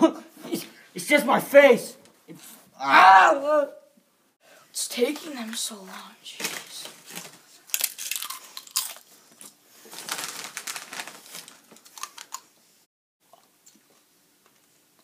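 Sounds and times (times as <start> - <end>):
foil bag crinkling: 6.4 - 12.5
chips crunching: 7.1 - 12.5.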